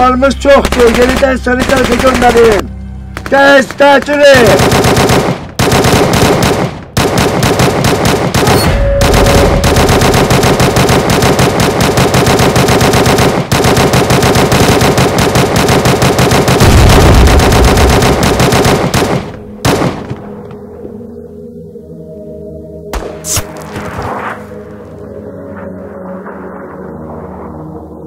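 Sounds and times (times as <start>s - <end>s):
automatic gunfire: 4.3s - 20.2s.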